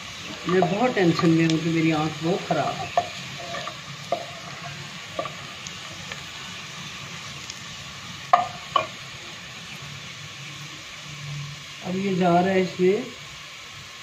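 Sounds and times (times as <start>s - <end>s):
onions sizzling in hot oil: 0.0s - 14.0s
wooden spatula knocking pot: 2.6s - 5.4s, 8.3s - 9.0s.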